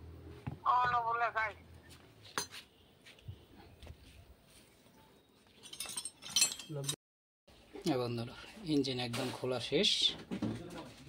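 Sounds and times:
metal tools clinking: 0:05.5 - 0:07.0.

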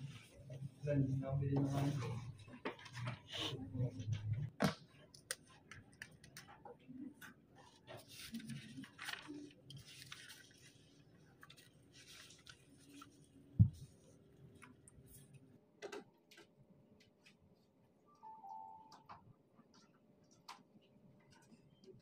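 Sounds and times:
paper pages rustling and turning: 0:04.1 - 0:14.9.

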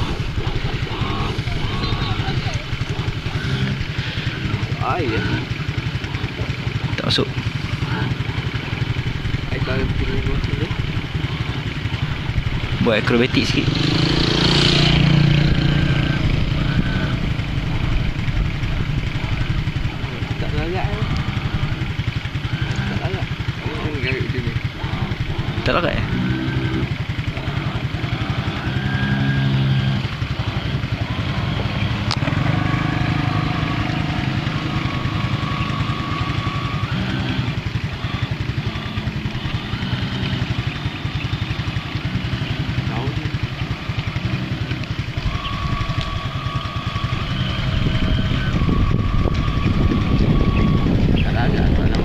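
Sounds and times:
model boat motor whining: 0:00.0 - 0:52.0
wind rumble on microphone: 0:15.0 - 0:22.5, 0:45.1 - 0:52.0.

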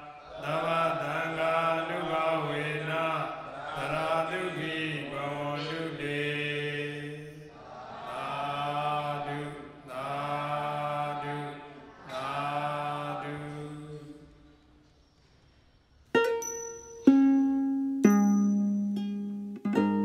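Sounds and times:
monks chanting: 0:00.0 - 0:14.4.

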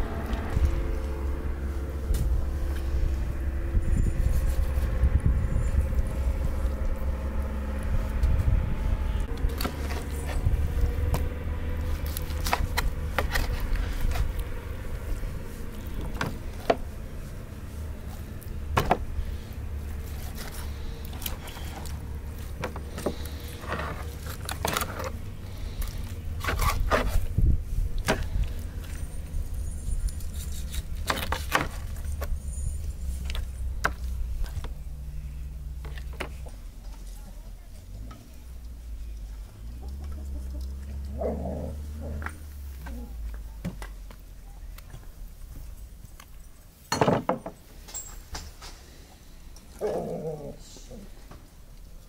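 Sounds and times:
steady low rumble: 0:00.0 - 0:46.6.

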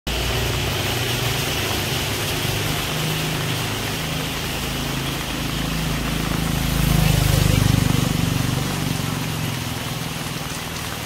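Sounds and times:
steady rain hiss: 0:00.1 - 0:11.0
vehicle engine running low: 0:00.1 - 0:11.0.

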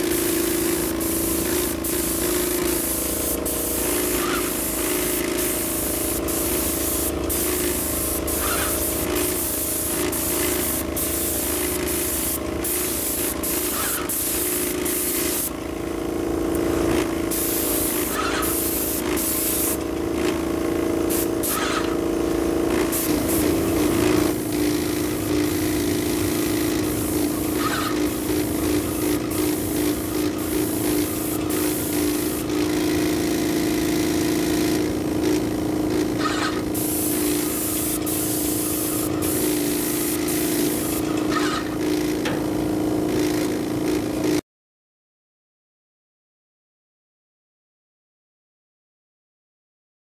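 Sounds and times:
steady hum: 0:00.0 - 0:15.5, 0:23.0 - 0:32.8
paint spray gun hissing: 0:00.0 - 0:15.6, 0:16.2 - 0:44.4.

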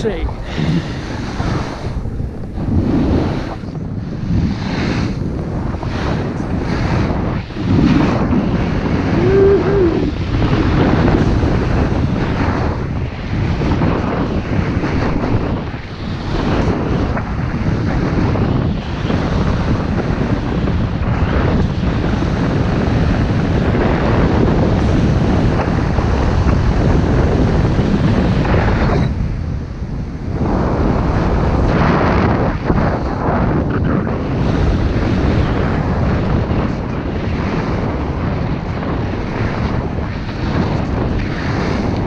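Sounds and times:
wind buffeting microphone: 0:00.0 - 0:42.0.

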